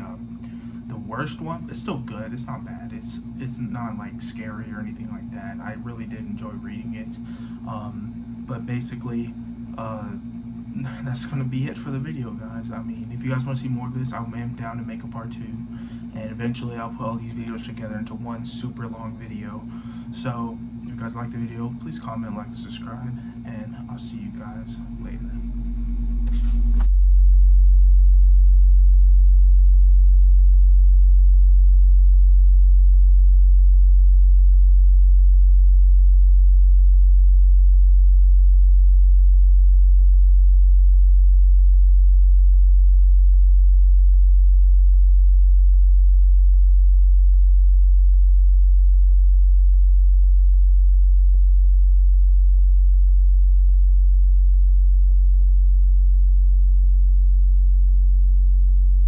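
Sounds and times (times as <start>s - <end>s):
loud steady low hum: 0.0s - 59.0s.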